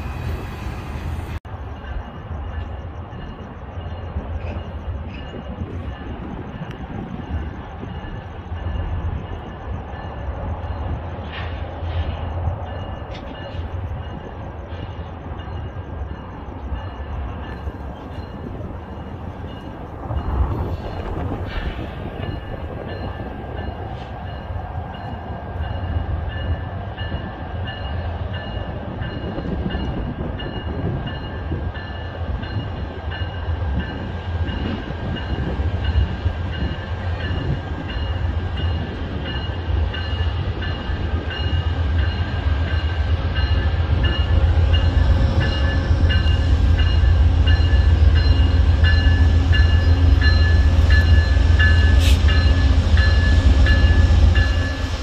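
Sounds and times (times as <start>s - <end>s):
diesel locomotive engine rumble: 0.0s - 55.0s
locomotive bell ringing: 12.4s - 55.0s.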